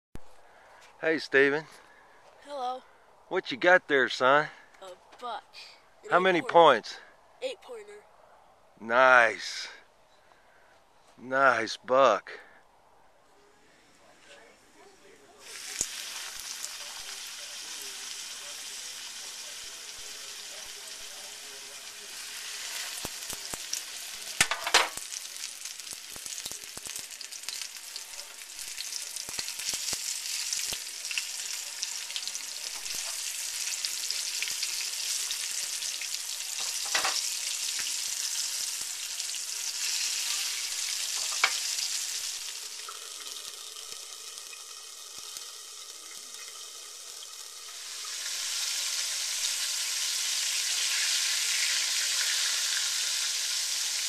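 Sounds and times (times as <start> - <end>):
meat sizzling in hot oil: 15.4 - 54.0.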